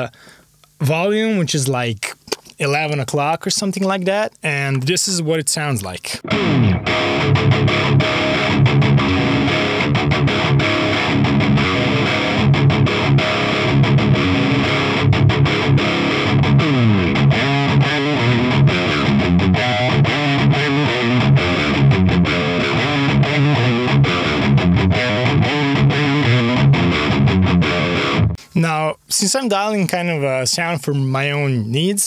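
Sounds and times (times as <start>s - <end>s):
distorted electric guitar riffs: 6.2s - 28.6s.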